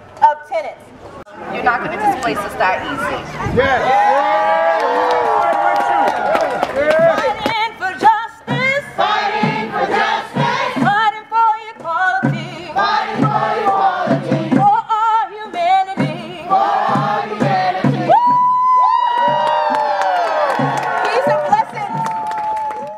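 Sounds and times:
group of voices singing: 7.2s - 18.2s.

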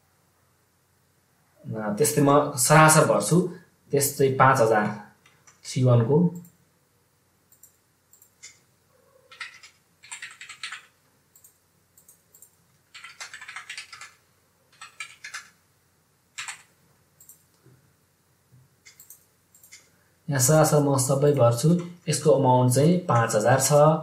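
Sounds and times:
computer keyboard typing: 5.2s - 5.7s, 7.5s - 8.6s, 9.3s - 15.6s, 16.4s - 17.6s, 18.8s - 19.9s, 23.1s - 23.8s.

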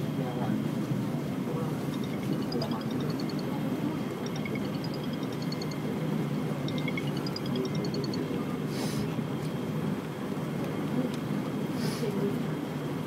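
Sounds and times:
short high electronic beeps: 1.9s - 3.5s, 4.2s - 5.8s, 6.7s - 8.2s.

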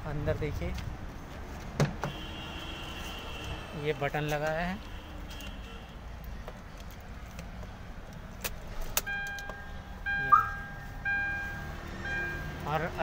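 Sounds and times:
repeated electronic beep: 9.1s - 12.6s.

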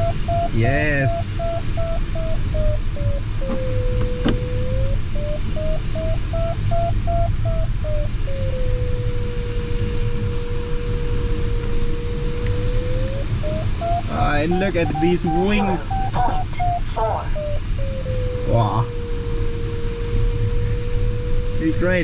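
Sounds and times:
variometer beeps: 0.0s - 9.4s, 11.4s - 19.1s
airflow rushing in cockpit: 0.0s - 22.0s
steady lower tone: 0.0s - 22.0s.

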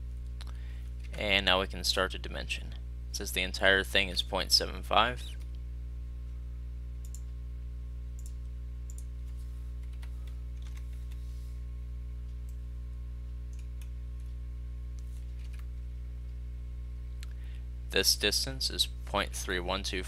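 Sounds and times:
low electrical hum: 0.0s - 20.0s
computer mouse clicks: 7.0s - 7.3s, 8.2s - 9.1s.

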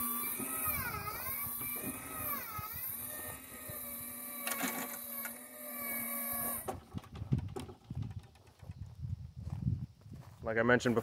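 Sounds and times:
electric motor whining: 0.0s - 8.0s.

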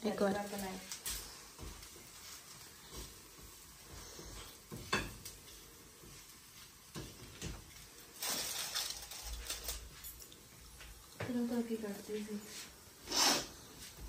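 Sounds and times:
pancake hissing: 1.0s - 9.6s, 12.4s - 14.0s
spatula clinking on a griddle: 4.7s - 5.3s.

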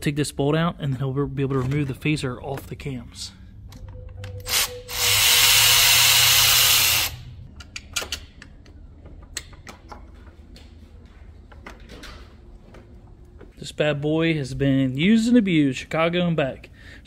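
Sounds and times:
handheld power tool running: 4.5s - 7.3s
tools clicking and tapping: 7.5s - 10.4s.

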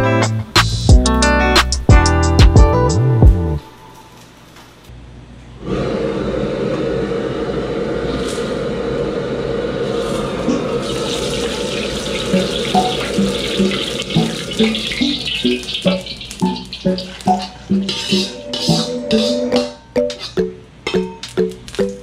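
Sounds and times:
wok burner rushing: 5.6s - 19.8s
ladle clinking against wok: 14.4s - 21.3s.

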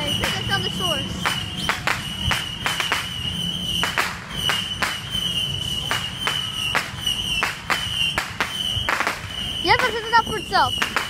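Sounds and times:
steady high-pitched tone: 0.0s - 7.4s
fireworks bangs and cracks: 0.0s - 11.0s.

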